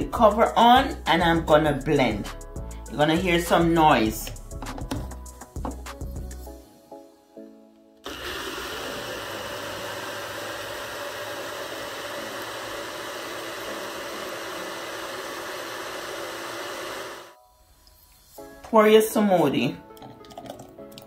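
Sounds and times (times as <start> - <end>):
blender motor running: 8.0 - 17.4.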